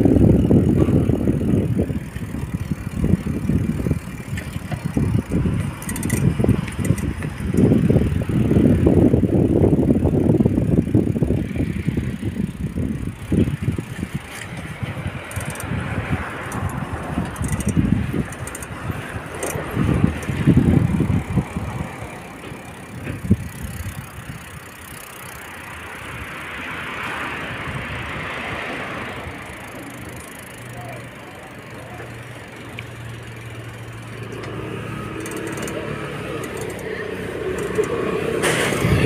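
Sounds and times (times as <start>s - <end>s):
motor scooter engine hum: 0.0s - 39.0s
car passing: 11.2s - 39.0s.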